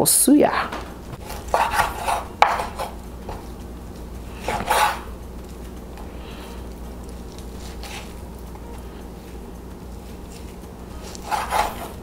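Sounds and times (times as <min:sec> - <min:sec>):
knife scraping on cutting board: 0:00.5 - 0:06.7, 0:07.3 - 0:08.2, 0:10.1 - 0:12.0.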